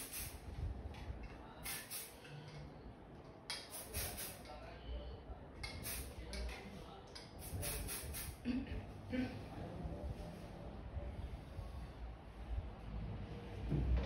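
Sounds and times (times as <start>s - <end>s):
low room rumble: 8.3s - 14.0s.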